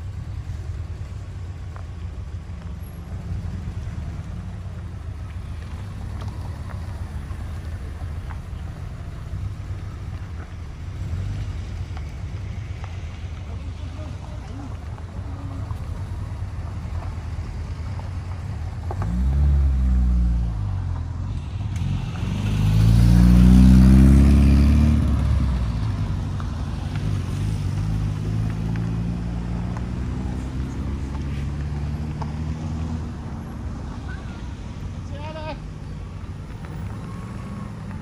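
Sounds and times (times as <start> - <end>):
car engine revving: 15.7 - 38.0
car accelerating past: 18.8 - 34.4.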